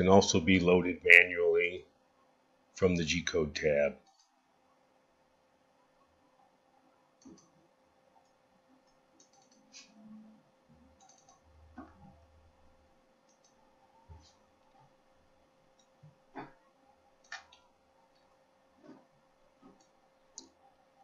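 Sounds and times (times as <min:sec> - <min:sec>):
computer mouse clicks: 0:07.2 - 0:07.6, 0:08.2 - 0:10.0, 0:10.9 - 0:12.1, 0:13.3 - 0:13.6, 0:17.2 - 0:19.0.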